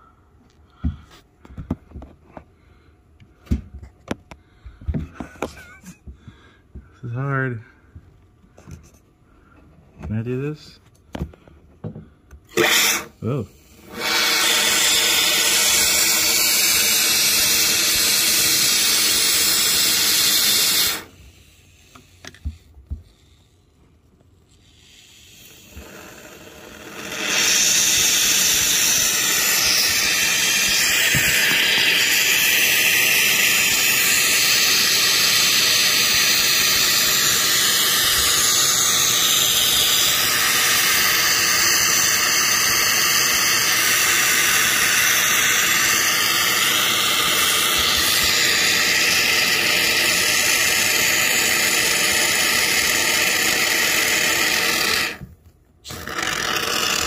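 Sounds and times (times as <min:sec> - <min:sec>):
spray foam can hissing: 0:12.5 - 0:23.4, 0:24.6 - 0:57.0.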